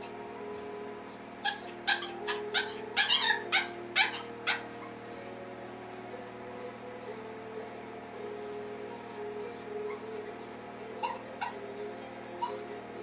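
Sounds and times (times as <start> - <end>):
soft background music: 0.0 - 13.0
puppy yapping: 1.4 - 5.0, 11.0 - 11.6, 12.4 - 12.7.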